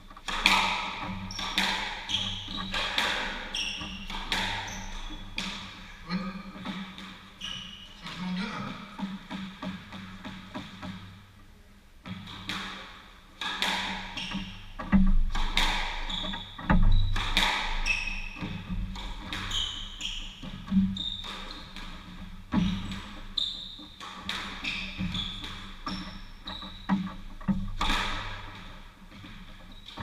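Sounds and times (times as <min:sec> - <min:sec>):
squash ball cracks: 0:00.2 - 0:05.9, 0:12.1 - 0:19.5, 0:24.0 - 0:25.8, 0:27.5 - 0:28.7
shoes squeaking on hardwood: 0:00.9 - 0:08.3, 0:19.4 - 0:24.0, 0:24.6 - 0:27.4.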